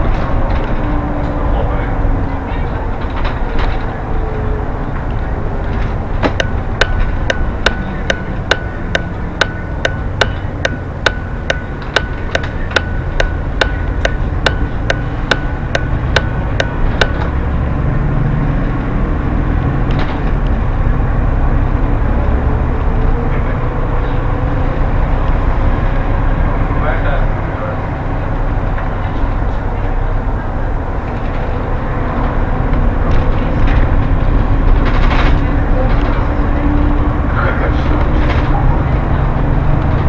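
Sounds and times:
bus engine and tyres rumbling: 0.0s - 40.0s
turn signal ticking: 6.3s - 17.7s.

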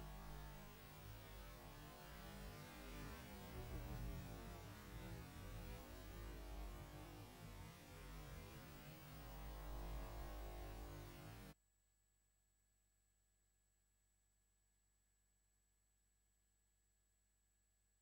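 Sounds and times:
static hiss and hum: 0.0s - 11.5s.

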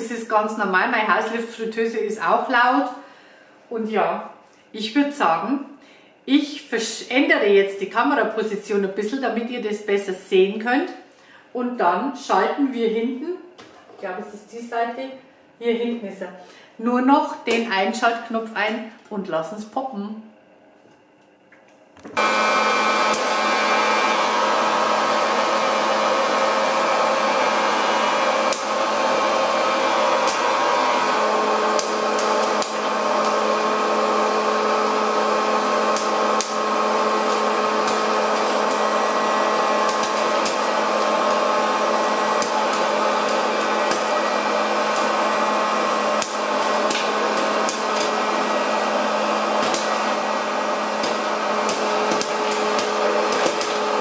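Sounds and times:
popcorn maker blower hum: 22.1s - 54.0s
corn kernels popping: 39.9s - 40.6s, 51.0s - 54.0s.

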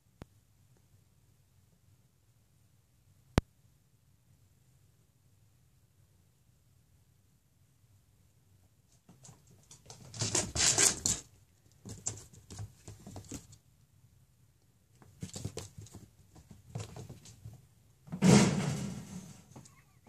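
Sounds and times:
cat paws skittering on floor: 8.9s - 13.6s, 14.9s - 17.7s
loud thump: 18.1s - 19.5s.

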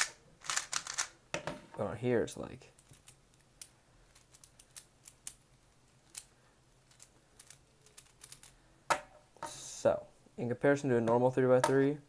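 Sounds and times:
plastic puzzle cube clicking: 6.9s - 8.5s.

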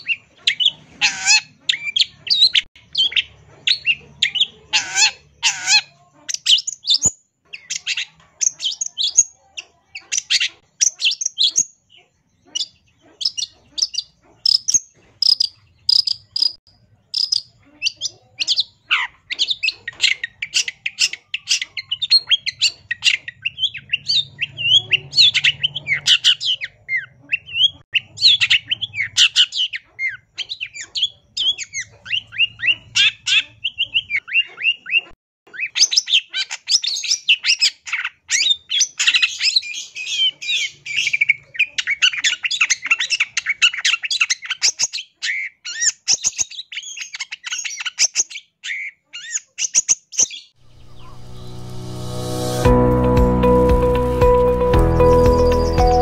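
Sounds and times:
bird singing fast chatter: 0.0s - 35.0s.

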